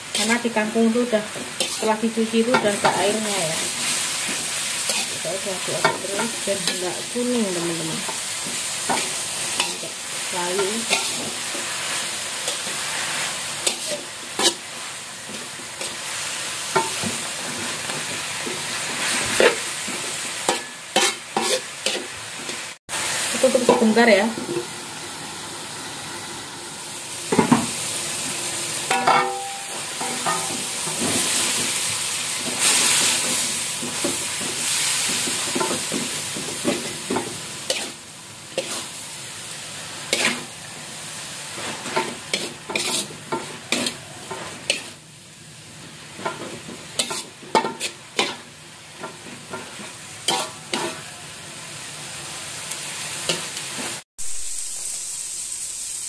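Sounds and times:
vegetables sizzling in a wok: 0.0 - 56.0
metal spatula scraping wok: 0.1 - 22.7, 28.8 - 40.5, 41.2 - 45.0, 45.8 - 51.3
ringing metal clangs: 28.9 - 30.5
spatula clinking against wok: 28.9 - 30.7.

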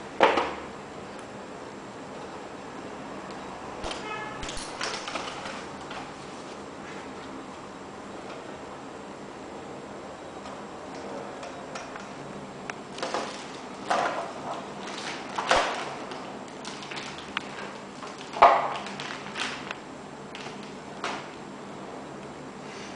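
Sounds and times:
plastic packaging crinkling: 12.9 - 19.8.

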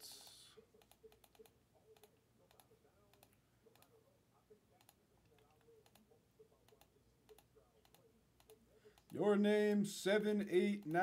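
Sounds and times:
computer mouse and keyboard clicking: 0.8 - 4.0, 4.8 - 6.1, 6.7 - 9.2.

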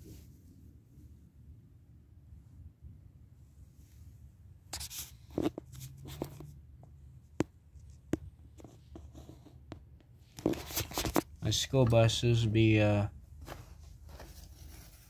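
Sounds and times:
air conditioner hum: 0.0 - 15.0
handling clicks and rustles: 4.8 - 12.6.

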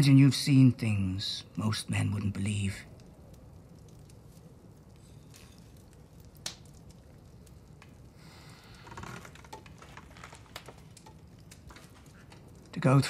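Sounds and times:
wood fire crackling and popping: 0.0 - 13.0
soft rustling: 7.5 - 12.6.

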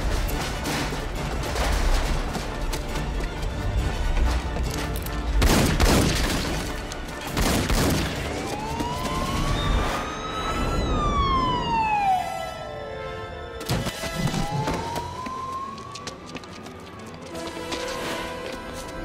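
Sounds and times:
tense film score: 0.0 - 19.0
siren-like wail: 8.2 - 16.3.

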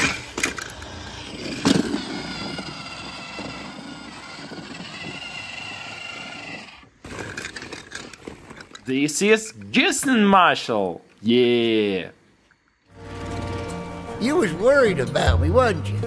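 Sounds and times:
toy motor drone with high whine: 0.0 - 6.9.

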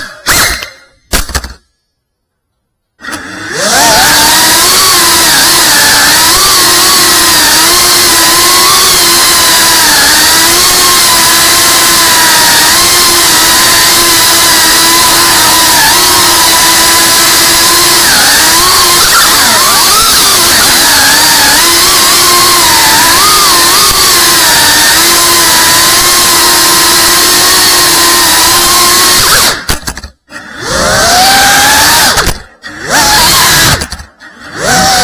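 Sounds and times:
drone motors whining: 0.0 - 1.6, 3.0 - 35.0.

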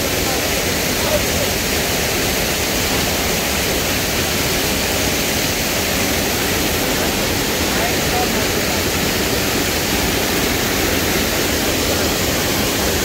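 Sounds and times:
waterfall rushing over boulders: 0.0 - 13.0.

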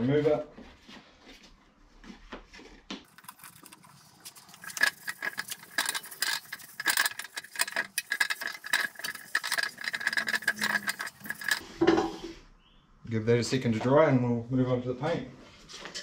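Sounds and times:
rag scrubbing metal: 3.1 - 11.7.

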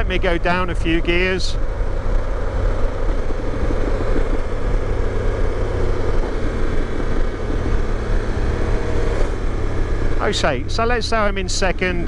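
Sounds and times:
motorcycle engine downshifting: 1.6 - 11.1.

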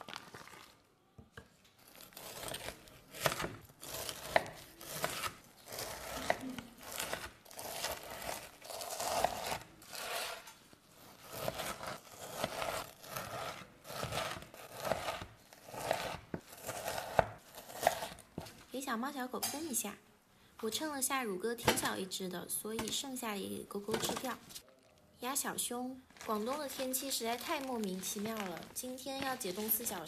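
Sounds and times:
knife slicing raw meat: 1.8 - 18.5.

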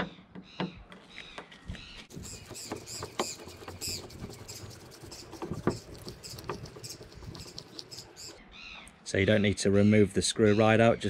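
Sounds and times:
high squeaky chirps: 2.1 - 8.4.

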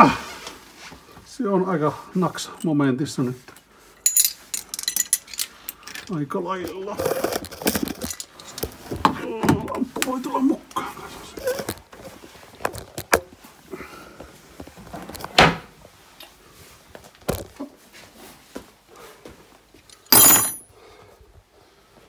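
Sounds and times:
rattling clatter of tools: 3.5 - 9.0, 19.9 - 20.7
tools clicking and knocking: 4.1 - 6.1, 6.7 - 8.8.

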